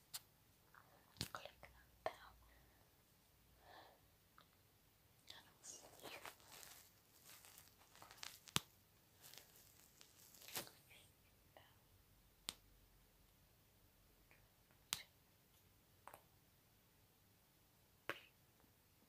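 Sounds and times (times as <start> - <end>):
breathy whispering: 0.7 - 2.9, 5.2 - 6.8, 10.7 - 11.9.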